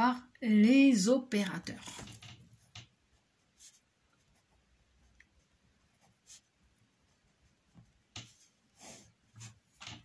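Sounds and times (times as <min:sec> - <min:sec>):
pen scratching on paper: 0:01.8 - 0:04.7, 0:05.4 - 0:09.8.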